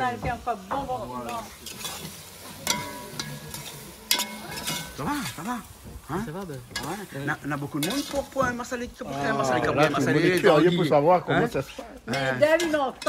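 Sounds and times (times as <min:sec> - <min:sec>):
sauce sizzling in a pot: 0:00.0 - 0:13.0
spoon stirring: 0:01.3 - 0:08.7, 0:12.1 - 0:13.0.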